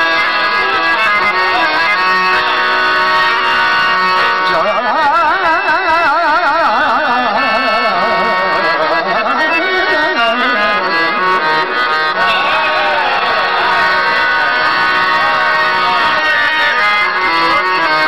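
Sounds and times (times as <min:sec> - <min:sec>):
harmonium drone: 0:00.0 - 0:18.0
man singing ornamented vocal line: 0:04.4 - 0:11.2.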